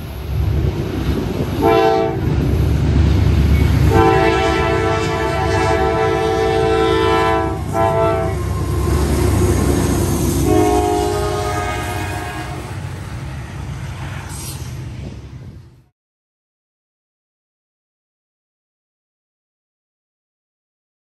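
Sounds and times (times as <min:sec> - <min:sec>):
locomotive engines rumbling: 0:00.0 - 0:15.9
train wheels rumbling: 0:00.0 - 0:15.9
locomotive air horn blasts: 0:01.6 - 0:02.3, 0:03.8 - 0:12.9.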